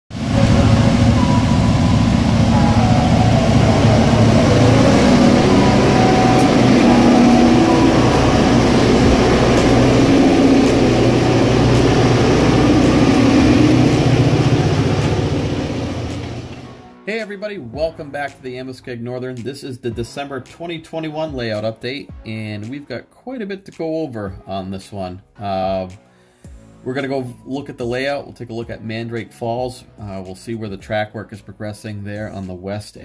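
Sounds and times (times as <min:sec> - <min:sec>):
freight cars rolling on rails: 0:00.1 - 0:16.9
diesel locomotive engines droning: 0:00.1 - 0:17.0.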